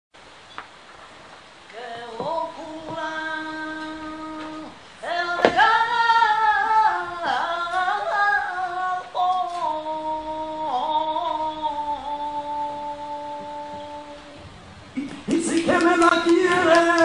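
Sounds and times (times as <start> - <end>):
woman singing unaccompanied: 1.7 - 14.5, 15.3 - 17.0.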